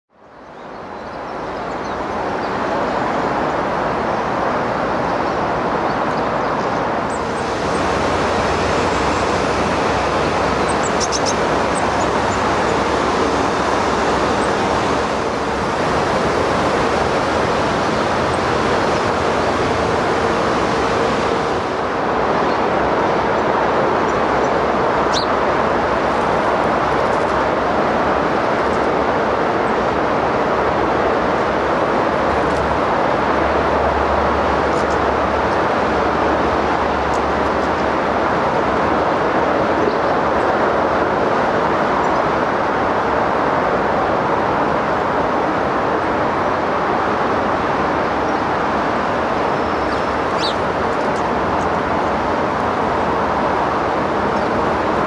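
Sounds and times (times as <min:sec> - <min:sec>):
rushing background noise: 0:00.1 - 0:55.0
small birds chirping: 0:00.2 - 0:02.6, 0:05.1 - 0:15.2, 0:25.1 - 0:25.4, 0:49.4 - 0:51.9, 0:54.3 - 0:54.6.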